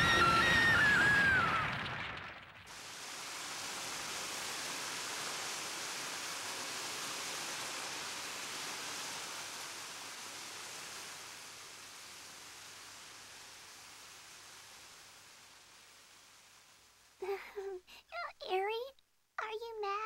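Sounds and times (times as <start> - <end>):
rushing ambient hiss: 2.7 - 18.2.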